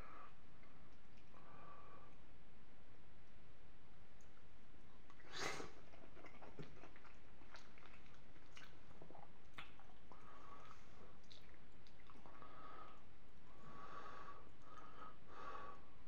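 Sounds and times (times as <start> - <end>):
chewing with mouth clicks: 5.0 - 13.5.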